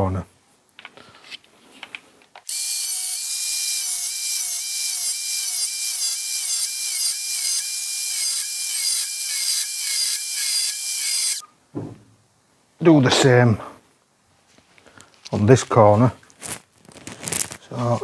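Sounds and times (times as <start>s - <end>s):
angle grinder cutting steel: 2.5s - 11.4s.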